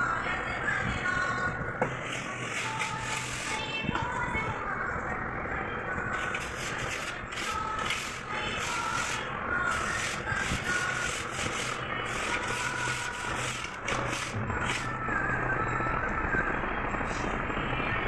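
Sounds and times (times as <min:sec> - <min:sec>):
metal bar scraping wet mortar: 0:02.0 - 0:03.6, 0:06.2 - 0:14.9.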